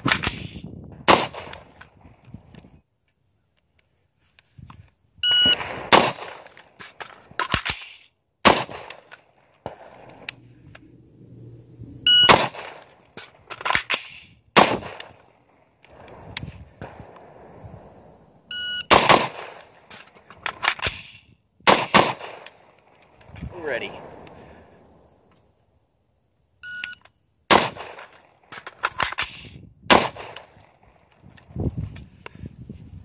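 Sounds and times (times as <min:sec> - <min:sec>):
rifle shots: 0:00.0 - 0:01.8, 0:05.3 - 0:10.3, 0:12.1 - 0:17.5, 0:18.8 - 0:21.1, 0:21.7 - 0:23.0, 0:27.5 - 0:30.9
magazine clicks and clatter: 0:00.0 - 0:02.7, 0:05.9 - 0:10.9, 0:12.3 - 0:17.3, 0:18.9 - 0:25.5, 0:26.9 - 0:31.5
shot timer beeps: 0:05.2 - 0:05.6, 0:12.1 - 0:12.4, 0:18.5 - 0:18.9, 0:26.6 - 0:27.0.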